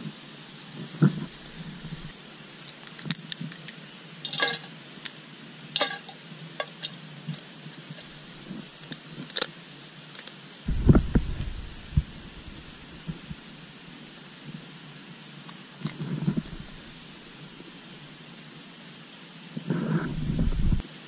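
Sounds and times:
steady background hiss: 0.0 - 21.0
metal stove clicking and rustling: 4.3 - 4.7
low heavy thuds: 10.7 - 13.5.

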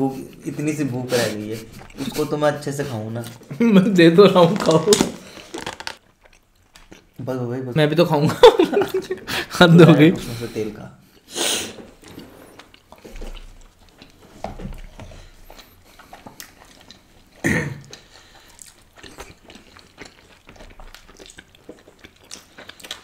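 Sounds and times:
people chewing and biting: 1.4 - 3.6, 4.3 - 7.2, 11.8 - 23.0.

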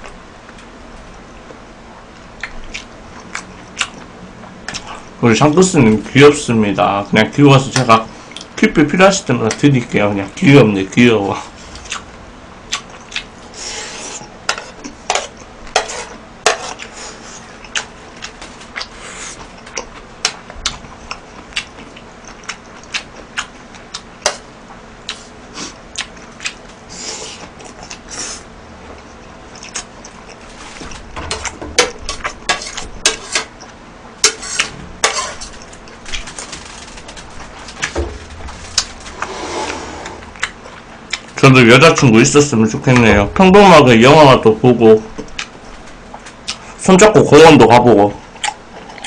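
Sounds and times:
metal spoon scraping a plate: 13.7 - 16.8, 34.2 - 35.6.

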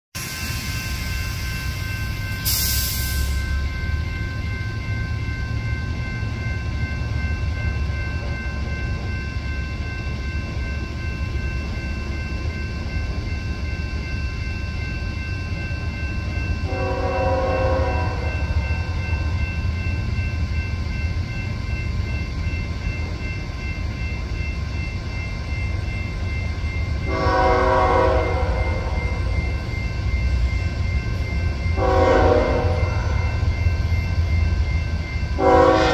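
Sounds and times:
crossing warning bell ringing: 0.2 - 35.9
train horn blasts: 16.6 - 18.4, 27.1 - 29.0, 31.8 - 33.2, 35.4 - 35.9.

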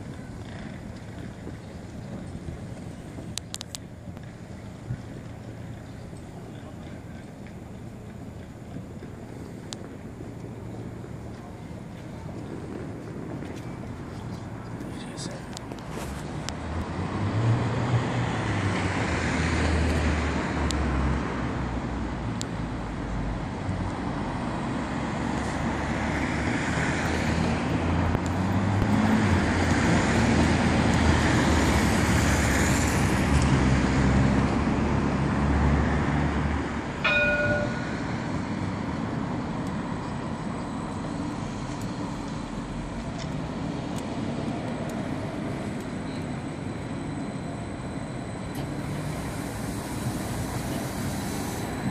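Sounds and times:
street traffic rumble: 0.0 - 51.9
tram electric whine: 0.0 - 51.9
short pitched chime: 37.0 - 38.1.

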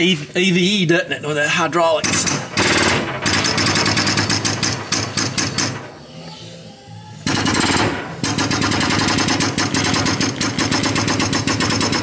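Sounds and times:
fast even clatter of clicks: 2.0 - 5.9.

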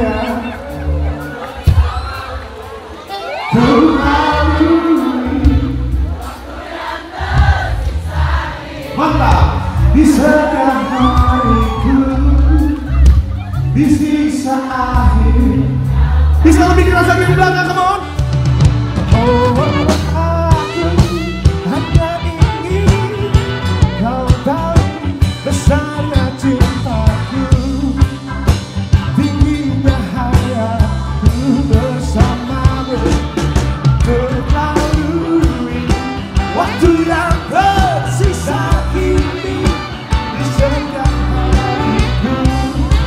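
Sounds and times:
bass: 0.0 - 6.5, 7.2 - 43.0
pop-rock band playing: 0.0 - 43.0
drum beat: 7.2 - 11.8, 16.5 - 43.0.

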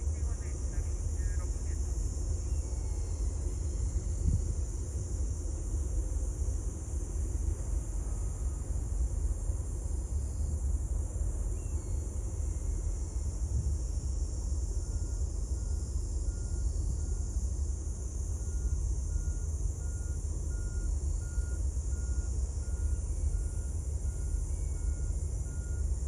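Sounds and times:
faint electronic beeps: 0.0 - 3.5, 18.4 - 26.0
low rumble: 0.0 - 14.0.

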